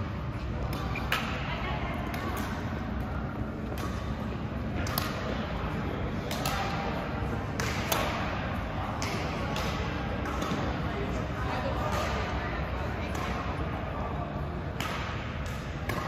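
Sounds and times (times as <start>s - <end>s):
rackets hitting shuttlecocks: 2.0s - 10.9s, 14.6s - 16.0s.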